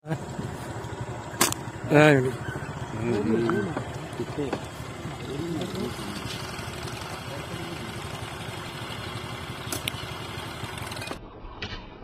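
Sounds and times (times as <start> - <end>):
motorcycle engine idling: 0.1 - 11.2
sharp click: 1.4 - 1.6, 9.7 - 10.0.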